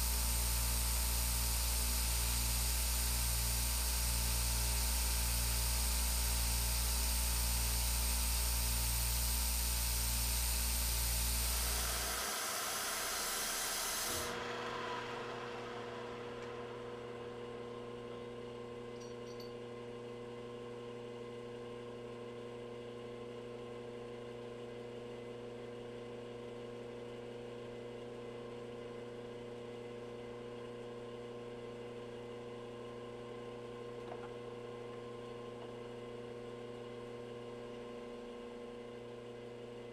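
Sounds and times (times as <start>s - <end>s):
machine electrical hum: 0.0s - 24.9s
milling machine cutting: 11.4s - 17.2s
hiss of spray: 11.5s - 14.4s.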